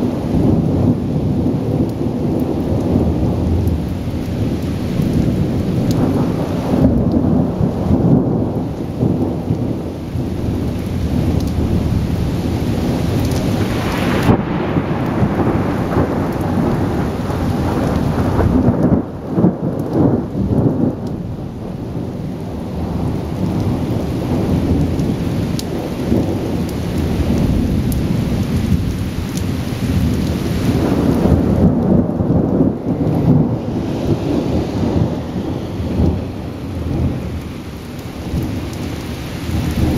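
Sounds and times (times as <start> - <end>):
rolling thunder: 0.0 - 39.9
steady rain: 0.0 - 39.9.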